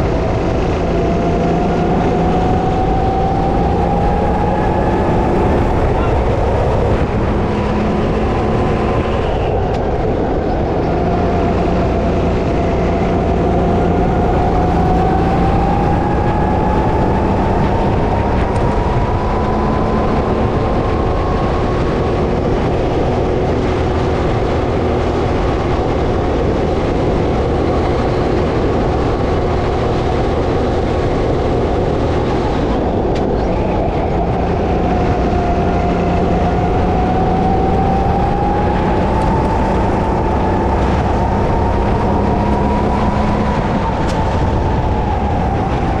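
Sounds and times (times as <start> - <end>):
go-kart engine racing: 0.0 - 46.0
wind and chassis rumble: 0.0 - 46.0.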